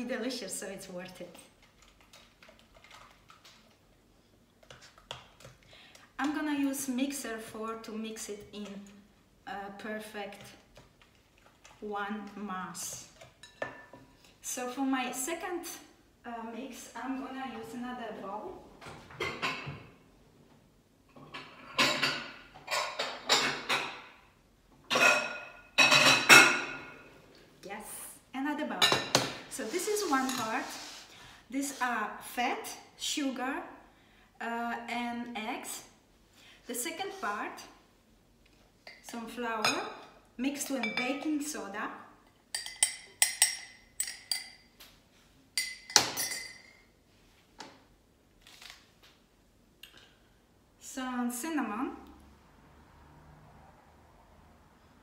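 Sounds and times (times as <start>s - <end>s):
dishes clattering and scraping: 13.2s - 14.1s, 19.0s - 20.0s, 21.1s - 24.2s, 24.9s - 27.0s, 45.6s - 46.9s
glass bowl clinking: 45.6s - 46.9s.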